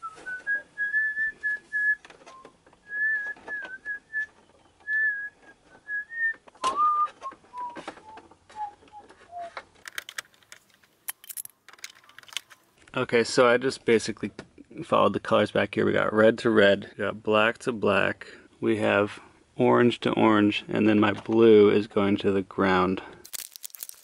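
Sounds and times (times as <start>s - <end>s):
person whistling a tune: 0.0s - 4.3s, 4.9s - 9.6s
clicks of wires and plastic parts: 6.3s - 13.0s.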